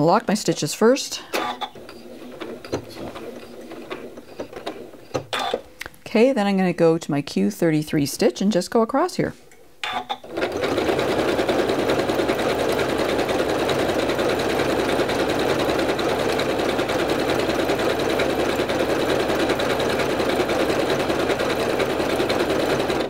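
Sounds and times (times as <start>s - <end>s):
sewing machine stitching: 1.4s - 5.7s, 9.9s - 23.0s.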